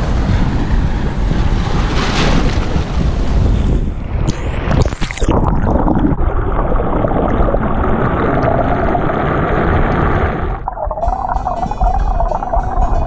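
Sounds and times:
muffled underwater churning: 4.1s - 13.0s.

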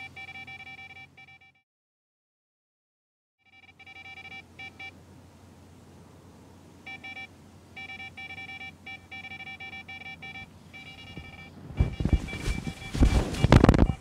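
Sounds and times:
bite alarm beeping: 0.0s - 1.6s, 3.4s - 5.0s, 6.8s - 14.0s
rustle of movement: 10.8s - 14.0s.

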